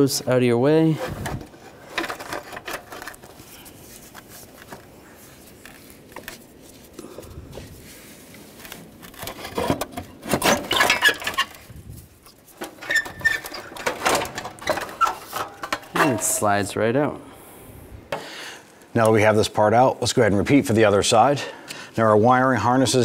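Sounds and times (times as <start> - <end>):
metal scraping and rattling: 0.8 - 4.1, 9.0 - 16.8
metal bracket clicks and knocks: 12.6 - 16.5.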